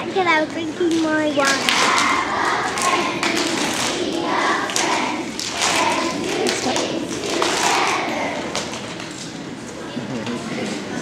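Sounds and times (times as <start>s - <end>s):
children clapping: 0.8s - 9.2s
children singing: 1.5s - 8.9s.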